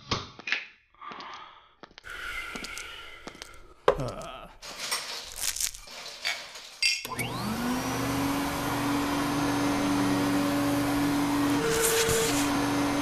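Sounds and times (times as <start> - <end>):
vacuum cleaner motor running: 7.1 - 13.0.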